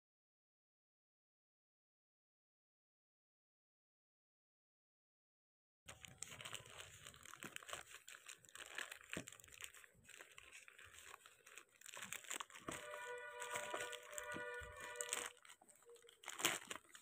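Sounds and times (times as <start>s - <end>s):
plastic wrapping crinkling: 5.9s - 17.0s.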